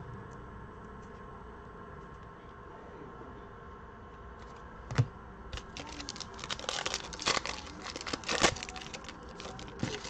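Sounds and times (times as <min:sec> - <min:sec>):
foil pack crinkling: 0:05.6 - 0:10.0.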